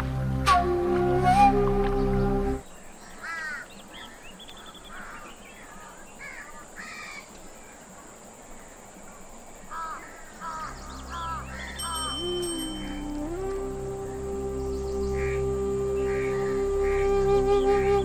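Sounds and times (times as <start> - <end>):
crows cawing: 3.2 - 3.7, 4.9 - 7.3, 9.7 - 11.7.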